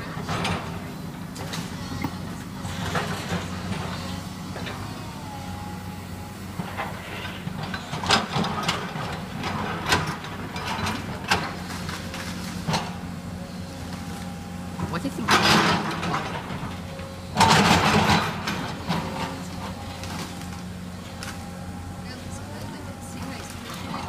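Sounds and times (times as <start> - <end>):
excavator engine hum: 0.0 - 24.0.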